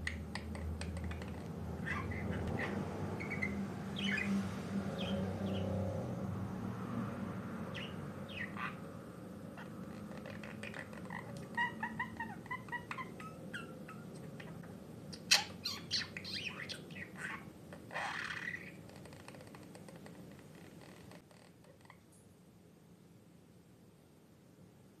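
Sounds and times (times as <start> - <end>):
budgerigar chirping and warbling: 0.0 - 5.8, 7.7 - 8.9, 9.6 - 21.0.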